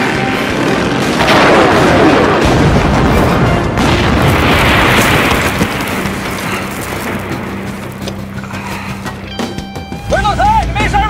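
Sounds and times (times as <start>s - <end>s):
explosions with rumbling tail: 0.0s - 8.0s
action movie music score: 0.0s - 11.0s.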